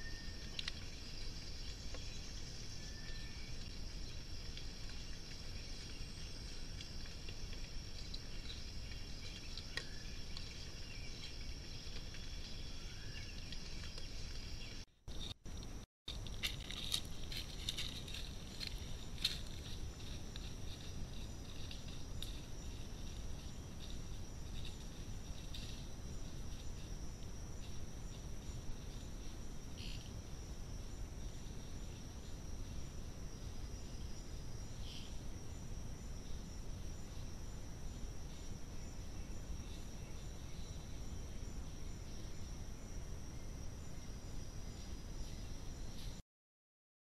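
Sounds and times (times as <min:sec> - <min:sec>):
insect chorus drone: 0:00.0 - 0:46.2
faint rustles and ticks: 0:03.1 - 0:30.2.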